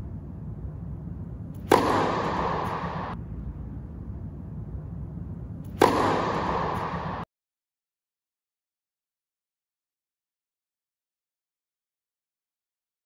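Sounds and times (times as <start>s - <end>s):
low steady rumble: 0.0s - 7.3s
racket hitting tennis ball: 1.4s - 3.2s, 5.5s - 7.3s.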